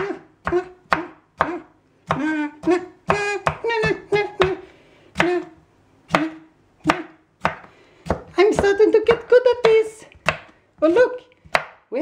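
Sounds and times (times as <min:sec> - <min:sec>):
knife chopping on wooden board: 0:00.0 - 0:04.6, 0:06.1 - 0:10.6, 0:11.4 - 0:11.8.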